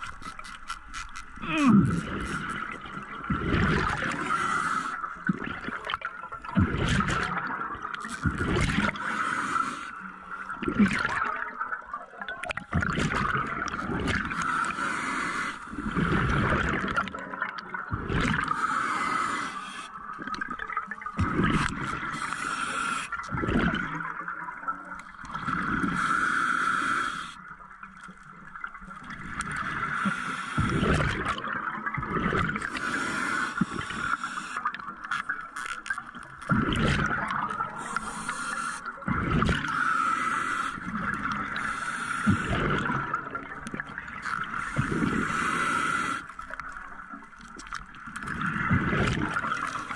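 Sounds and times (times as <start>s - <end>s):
exhaled bubbles rumbling: 1.4s - 4.4s, 5.2s - 9.0s, 10.5s - 14.5s, 15.7s - 18.6s, 20.0s - 22.2s, 23.2s - 26.0s, 30.6s - 32.8s, 34.6s - 38.0s, 39.0s - 39.8s, 40.8s - 41.6s, 42.3s - 45.3s, 46.5s - 49.9s
hissing regulator inhalation: 18.5s - 19.9s, 22.0s - 23.2s, 25.8s - 27.4s, 32.7s - 34.7s, 37.7s - 38.9s, 39.7s - 40.9s, 41.6s - 42.6s, 44.6s - 46.3s.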